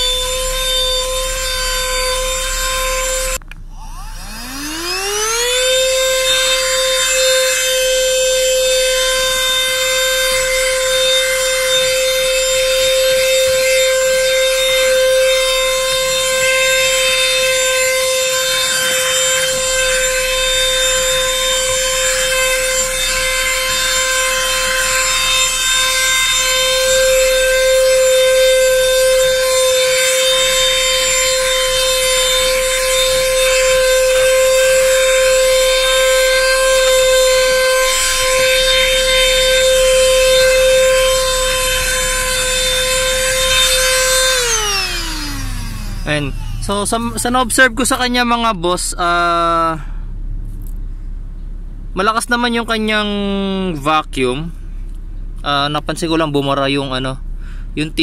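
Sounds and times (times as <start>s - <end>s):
handheld vacuum cleaner running: 0.0s - 47.4s.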